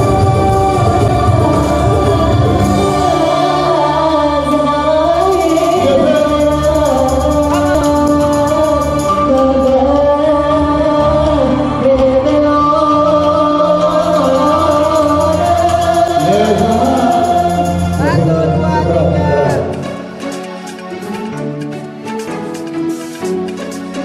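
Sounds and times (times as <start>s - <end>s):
song playing: 0.0s - 24.0s.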